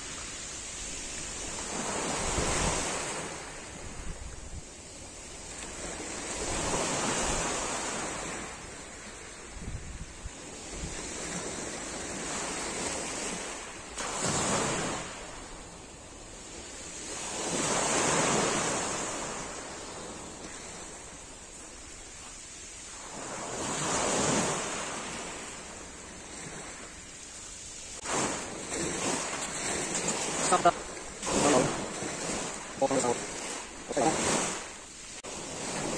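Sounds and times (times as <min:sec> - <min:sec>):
waves breaking on pebble beach: 0:00.0 - 0:35.9.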